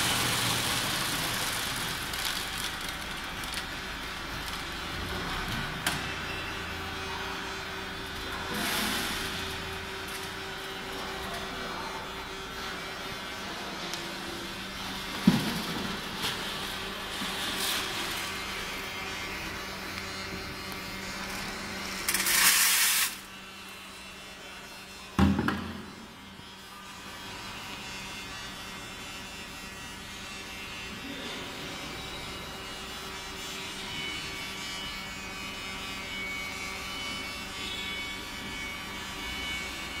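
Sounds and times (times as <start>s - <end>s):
sorting machine humming: 0.0s - 23.4s.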